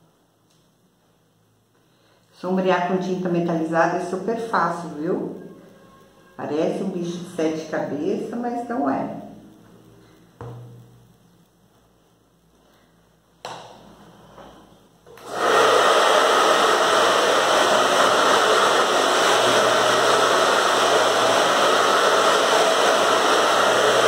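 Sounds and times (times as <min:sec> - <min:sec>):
hair dryer blowing: 0:15.1 - 0:24.0.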